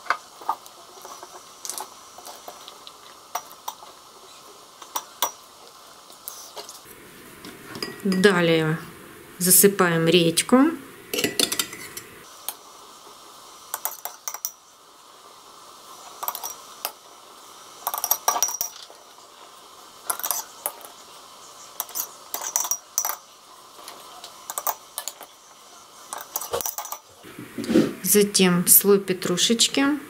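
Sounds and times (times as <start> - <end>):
metal spoon clinking on glass jars: 11.2 - 12.1, 13.8 - 14.6, 16.2 - 16.6, 17.8 - 19.0, 20.1 - 20.9, 21.8 - 23.3, 24.5 - 25.3, 26.1 - 27.1.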